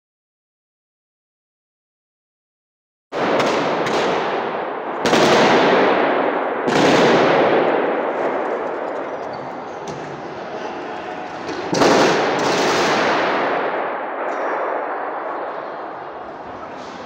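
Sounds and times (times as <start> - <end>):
automatic gunfire echoing: 3.2 - 16.2.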